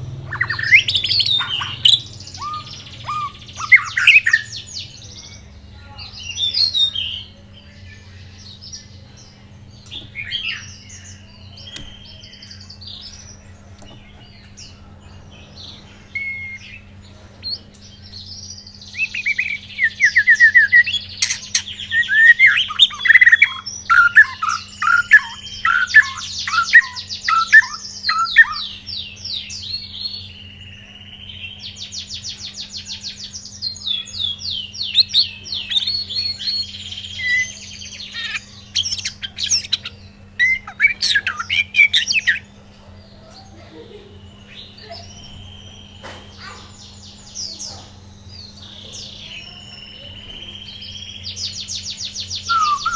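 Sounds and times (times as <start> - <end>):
songbird whistling and trilling: 0.3 - 5.4, 16.1 - 16.9, 17.5 - 42.6, 44.3 - 47.4, 48.3 - 52.9.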